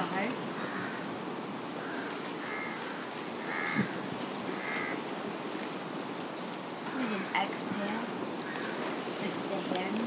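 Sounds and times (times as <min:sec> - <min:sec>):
bird calling: 0:01.8 - 0:05.0.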